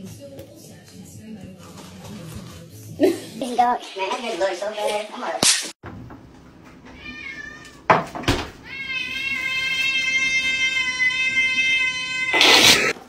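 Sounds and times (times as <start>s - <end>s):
cat yowling meow: 7.0s - 7.9s, 8.6s - 13.0s.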